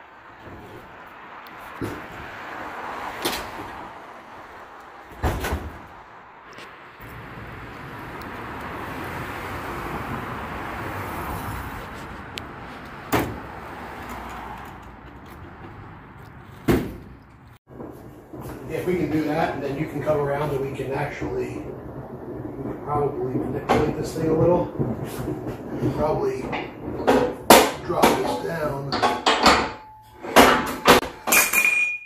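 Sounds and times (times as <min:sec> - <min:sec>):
vehicle passing: 0:00.0 - 0:27.5
trailer door slamming: 0:01.6 - 0:04.0, 0:05.0 - 0:06.1, 0:13.0 - 0:13.7, 0:16.6 - 0:17.1
metal knocks in trailer: 0:22.7 - 0:31.9.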